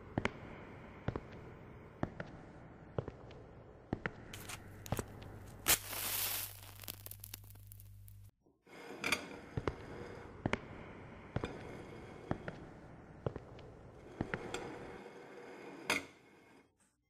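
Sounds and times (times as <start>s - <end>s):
scratchy hiss: 4.4s - 8.3s.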